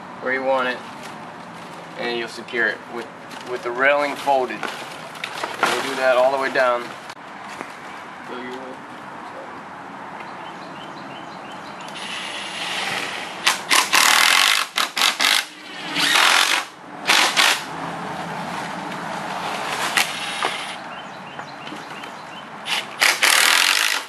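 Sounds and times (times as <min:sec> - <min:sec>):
cordless drill driving screws: 0:12.0 - 0:17.6, 0:22.7 - 0:24.0.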